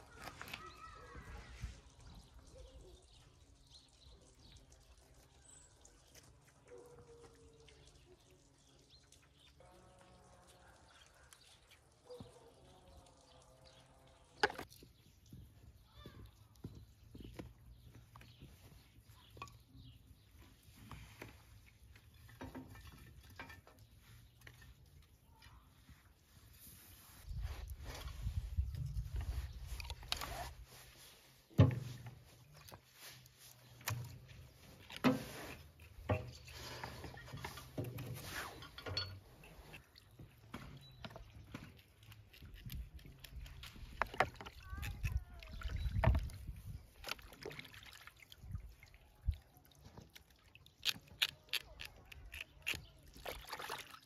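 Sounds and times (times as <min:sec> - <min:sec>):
rustling of wood: 0:00.0 - 0:02.2, 0:14.4 - 0:47.6.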